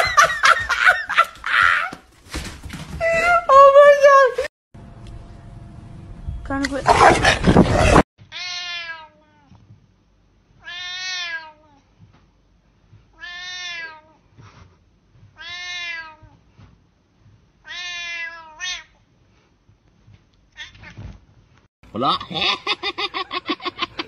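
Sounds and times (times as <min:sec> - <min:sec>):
cat meowing: 0:10.6 - 0:11.6, 0:13.2 - 0:14.1.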